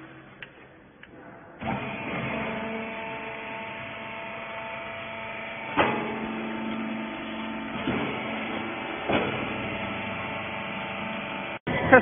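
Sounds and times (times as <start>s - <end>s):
baler motor hum: 1.6s - 11.6s
sharp machine clunks: 5.6s - 10.0s.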